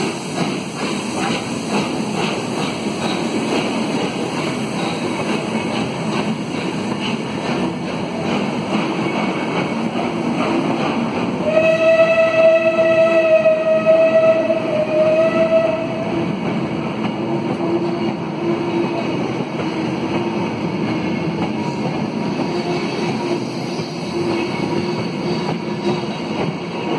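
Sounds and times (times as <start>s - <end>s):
train wheels rumbling on rails: 0.0s - 26.9s.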